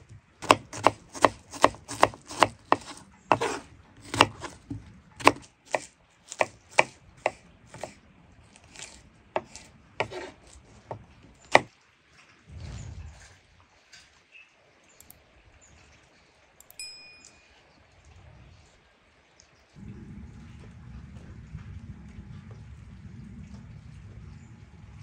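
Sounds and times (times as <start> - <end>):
knife chopping on cutting board: 0.4 - 8.0, 8.6 - 11.7
low rumble: 12.5 - 13.6, 19.8 - 25.0.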